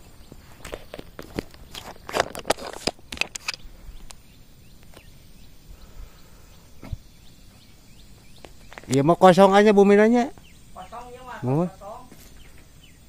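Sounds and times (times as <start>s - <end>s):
faint bird chirps: 3.4s - 13.0s
footsteps on concrete: 6.8s - 9.0s.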